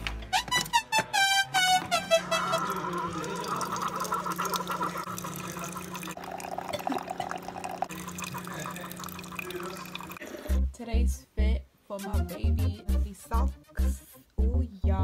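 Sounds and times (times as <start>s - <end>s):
music notes: 0.0s - 3.8s
coffee maker humming: 2.2s - 10.5s
coffee splashing into a mug: 2.5s - 10.2s.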